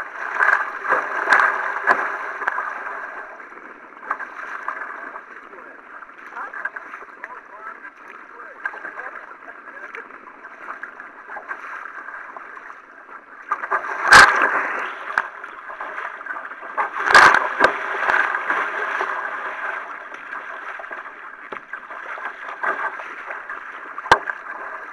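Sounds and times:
paddle splashes: 0.0 - 24.9
water rushing around a kayak: 0.0 - 24.9.

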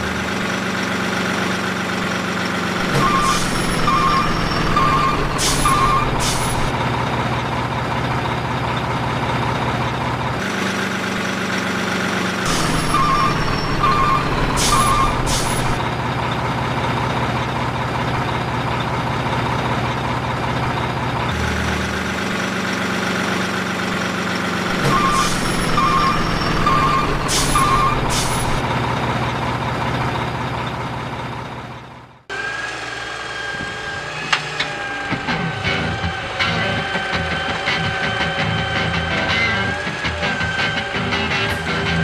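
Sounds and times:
diesel truck engine running: 0.0 - 42.0
reversing beeps: 12.5 - 15.3
air brake hisses: 14.6 - 15.7, 27.2 - 28.6.

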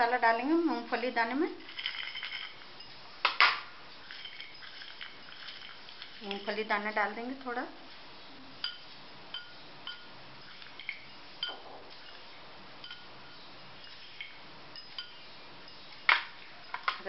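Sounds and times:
peanuts clinking on plate: 0.0 - 7.6.

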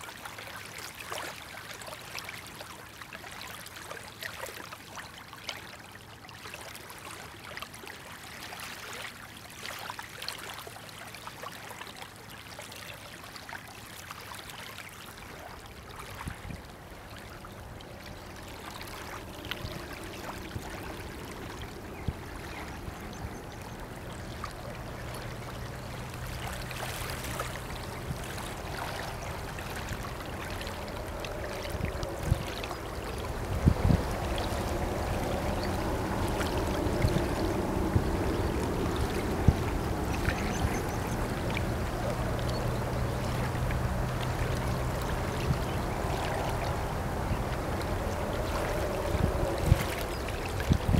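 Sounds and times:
river water lapping and splashing: 0.0 - 50.9
boat engines humming: 16.7 - 50.9.

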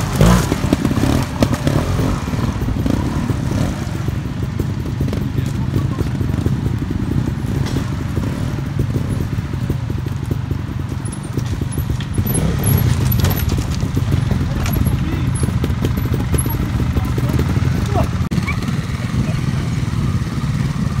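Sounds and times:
motorcycle engine pulsing: 0.0 - 21.0.

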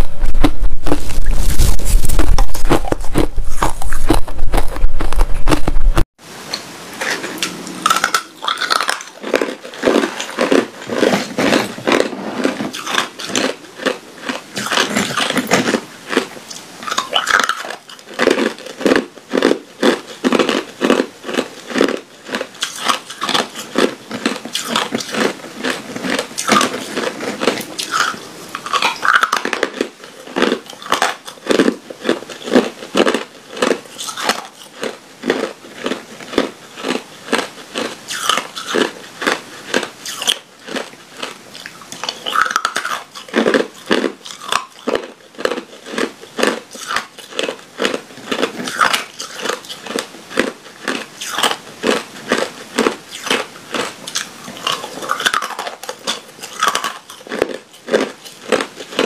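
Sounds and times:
ice cubes crunching: 0.0 - 6.0, 7.9 - 59.0.

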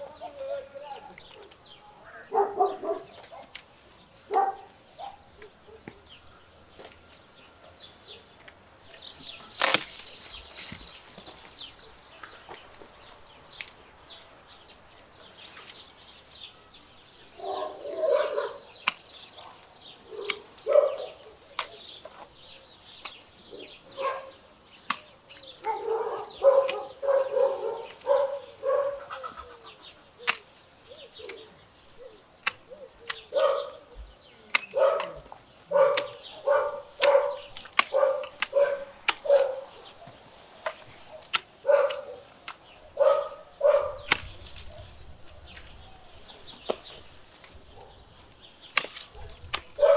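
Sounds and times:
pruning shears snipping branches: 0.0 - 1.7, 2.9 - 6.1, 8.3 - 11.6, 12.2 - 13.9, 15.1 - 15.9, 17.8 - 23.4, 24.8 - 29.0, 30.2 - 31.6, 32.2 - 45.8, 46.5 - 49.9
dog barking: 2.2 - 3.5, 4.3 - 5.9, 17.4 - 18.7, 19.4 - 21.5, 23.5 - 24.4, 25.6 - 29.2, 33.3 - 33.9, 34.7 - 40.2, 41.1 - 42.2, 42.9 - 44.1, 49.2 - 49.9.

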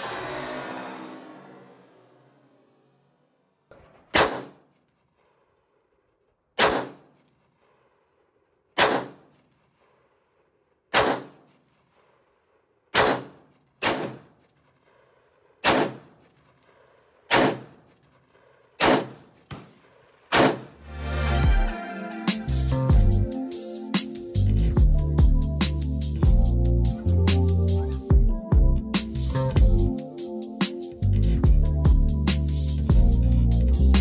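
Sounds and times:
faint bangs: 3.6 - 5.4
gunshots with echo: 3.7 - 4.8, 6.6 - 7.3, 8.8 - 9.5, 10.9 - 11.6, 12.9 - 14.4, 15.6 - 16.3, 17.3 - 17.9, 18.8 - 20.8.

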